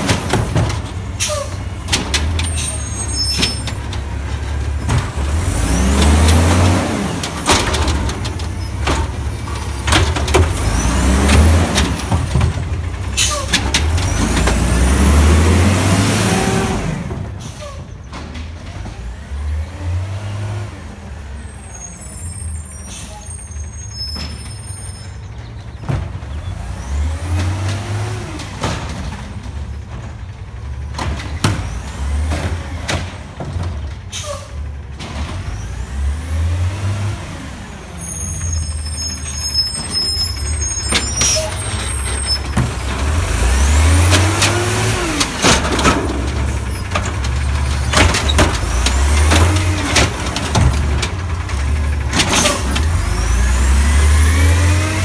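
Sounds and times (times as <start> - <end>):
garbage truck engine revving: 0.0 - 55.0
air brake hisses: 34.1 - 34.6.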